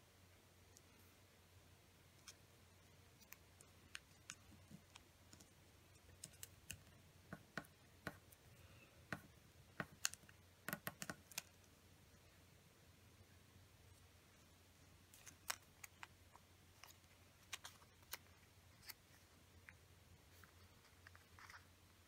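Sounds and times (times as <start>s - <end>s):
paper folding and creasing: 15.1s - 21.8s.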